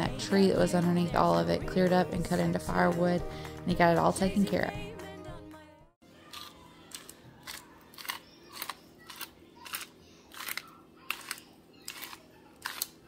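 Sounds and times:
salt grinder crunching crystals: 0:06.3 - 0:13.0.

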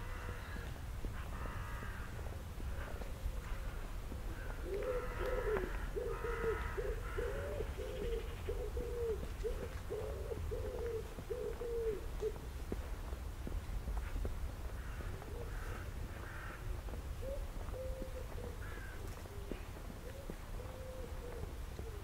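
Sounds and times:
pigeon cooing: 0:04.4 - 0:12.4, 0:17.2 - 0:22.0.

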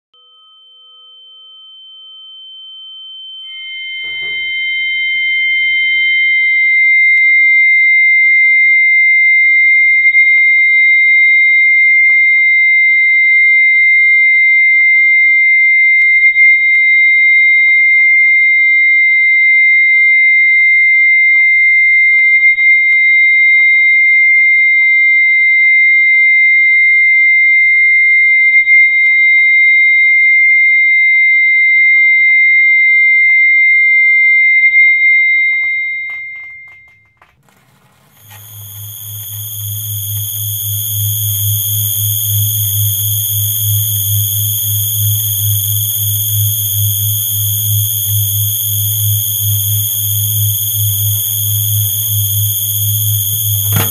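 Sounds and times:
fainter higher tone: 0:00.2 - 0:08.2
slightly higher tone: 0:03.5 - 0:07.6
high-pitched electronic tone: 0:04.0 - 0:07.2, 0:38.1 - 0:53.9.

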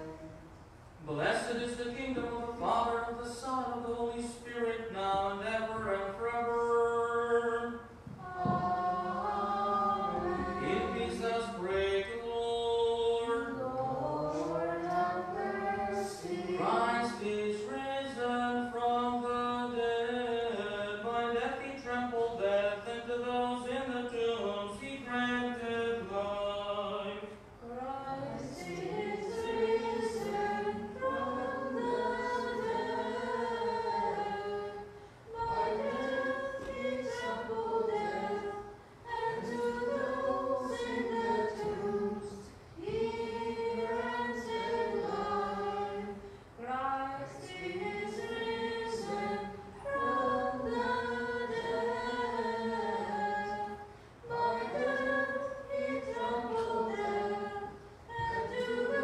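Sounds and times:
unaccompanied liturgical chant: 0:00.0 - 0:59.0.

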